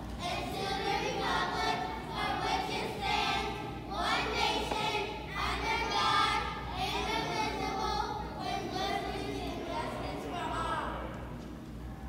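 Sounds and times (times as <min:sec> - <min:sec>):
children singing in unison: 0:00.2 - 0:09.7.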